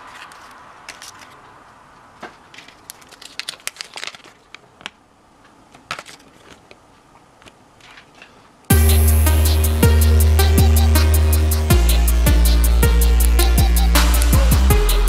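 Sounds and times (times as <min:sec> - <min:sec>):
paper crinkling: 0:02.3 - 0:05.0.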